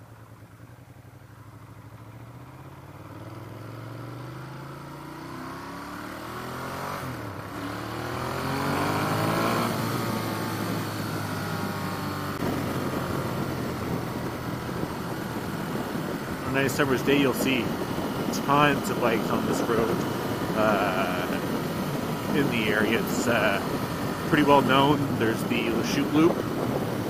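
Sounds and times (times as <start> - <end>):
motorcycle engine accelerating: 0.1 - 27.0
wind rushing on microphone: 8.7 - 27.0.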